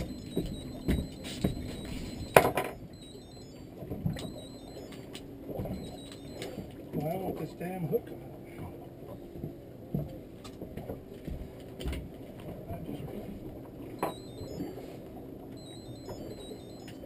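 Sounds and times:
knocks and clicks on boat deck: 0.0 - 2.8.

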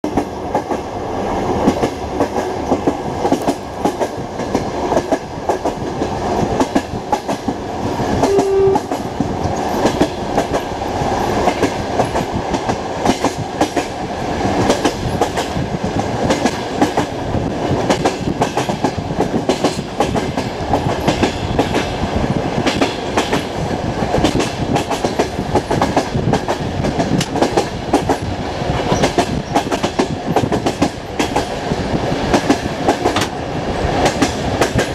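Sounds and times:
train rumble and wind rush: 0.0 - 34.9
brief single tone: 8.2 - 8.9.

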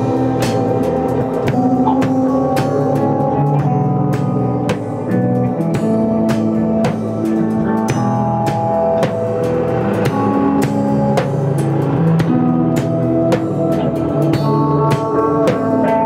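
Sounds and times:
drum kit hits: 0.0 - 16.0
held bass notes: 0.0 - 16.0
held guitar notes: 0.0 - 16.0.

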